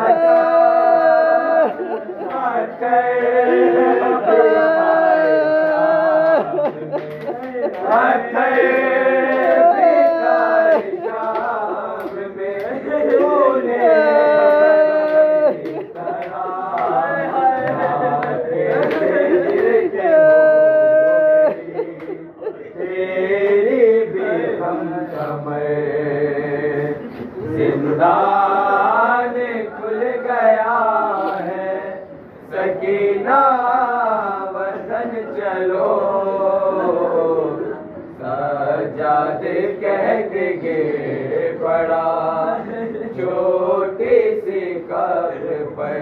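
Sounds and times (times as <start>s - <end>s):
person singing a lament: 0.0s - 31.8s.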